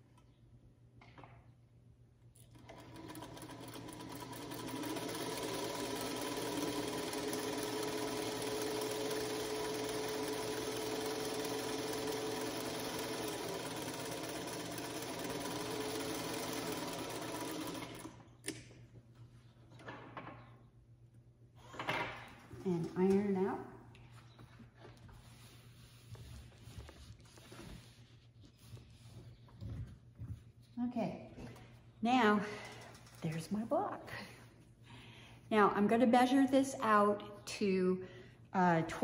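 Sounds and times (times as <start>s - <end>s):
sewing machine stitching: 2.4s - 18.2s.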